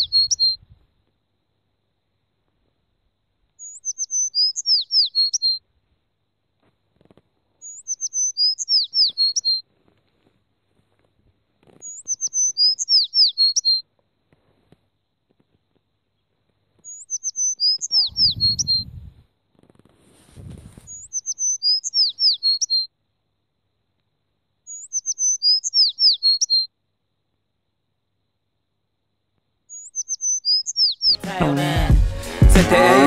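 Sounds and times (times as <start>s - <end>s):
songbird chirping: 0.0s - 0.8s, 3.5s - 5.7s, 7.6s - 9.6s, 11.7s - 13.9s, 16.0s - 19.1s, 20.8s - 22.9s, 23.9s - 26.8s, 29.7s - 31.6s
low rustle: 18.2s - 21.0s.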